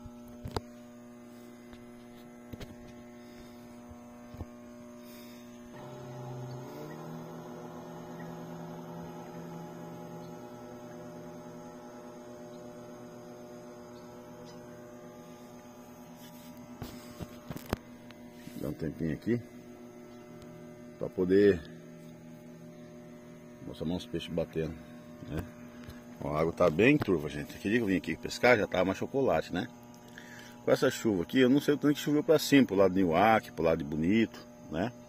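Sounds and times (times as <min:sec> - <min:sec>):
steady even-pitched hum: 0:00.0 - 0:35.0
lower hum sliding up in pitch: 0:01.8 - 0:16.5.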